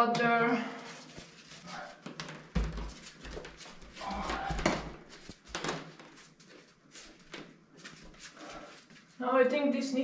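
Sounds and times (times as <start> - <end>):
thumps and scuffing on shower tray: 2.0 - 6.2.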